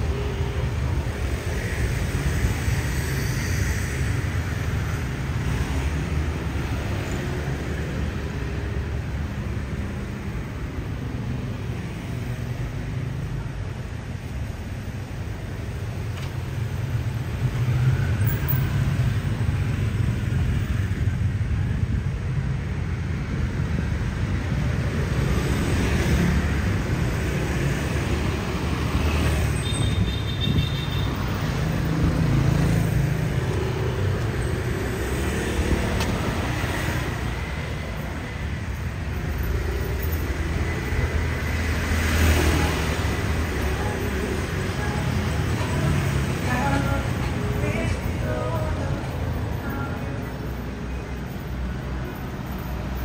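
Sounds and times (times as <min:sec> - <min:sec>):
scooters passing by: 0:23.8 - 0:50.6.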